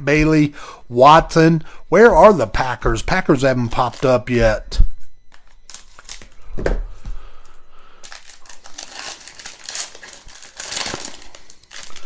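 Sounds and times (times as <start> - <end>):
foil wrapper crinkling: 3.6 - 4.3, 5.3 - 6.4, 8.0 - 12.0.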